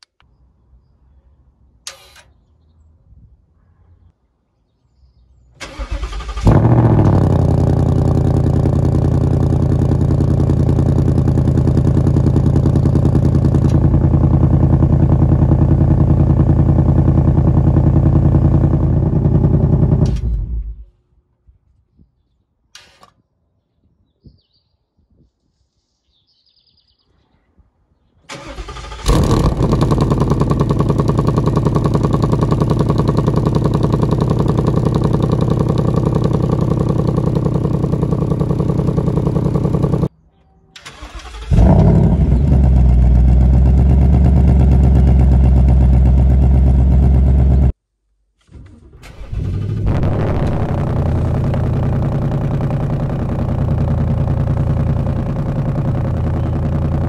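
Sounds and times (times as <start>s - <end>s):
car engine starting and idling: 5.5s - 21.0s, 28.3s - 40.1s, 40.8s - 47.8s, 48.4s - 57.0s.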